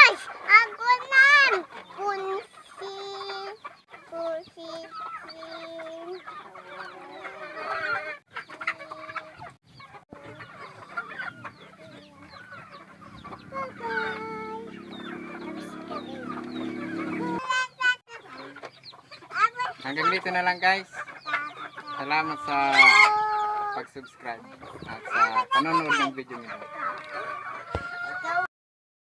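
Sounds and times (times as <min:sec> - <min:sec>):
chickens clucking: 0:00.0 - 0:28.5
chicken long calls: 0:04.8 - 0:20.2, 0:20.9 - 0:23.9, 0:24.9 - 0:28.5.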